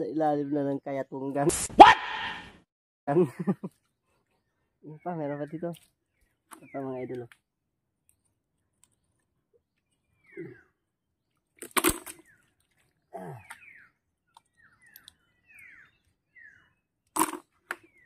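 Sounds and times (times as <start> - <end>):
wet mud squelching: 5.4 - 7.5.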